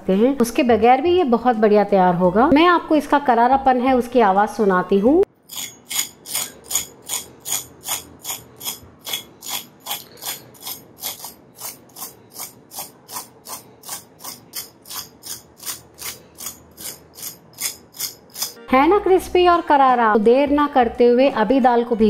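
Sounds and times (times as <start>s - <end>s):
fork scraping crisp fried snack: 5.5s - 18.6s.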